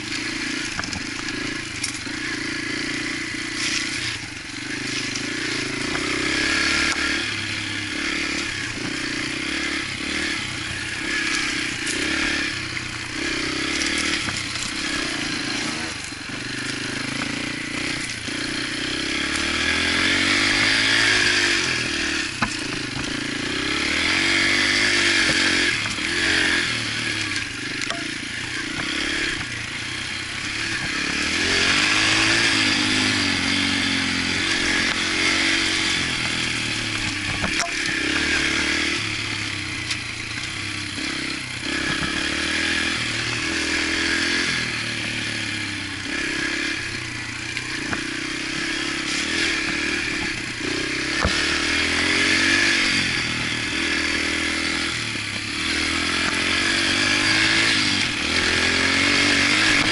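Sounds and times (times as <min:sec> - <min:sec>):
dirt bike engine revving: 0:00.0 - 0:59.9
bike knocks and rattles: 0:00.5 - 0:02.2, 0:21.7 - 0:23.7, 0:34.5 - 0:38.8, 0:47.4 - 0:51.8.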